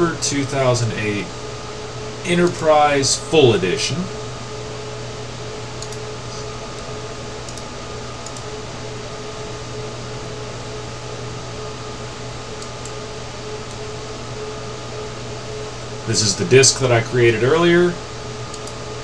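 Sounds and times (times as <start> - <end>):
room noise hum and hiss: 0.0 - 19.0
computer mouse clicks: 5.8 - 6.1, 7.4 - 8.5, 18.5 - 18.8.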